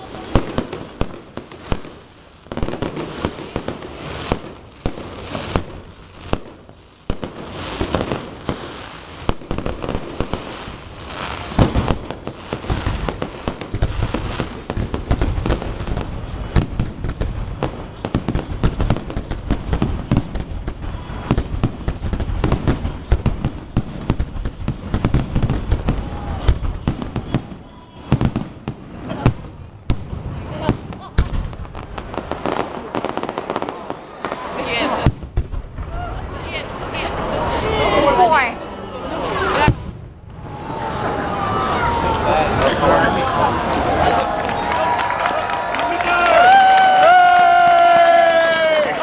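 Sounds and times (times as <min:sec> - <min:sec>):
firework shells bursting: 0:00.0 - 0:28.8
crackling firework stars: 0:00.0 - 0:49.0.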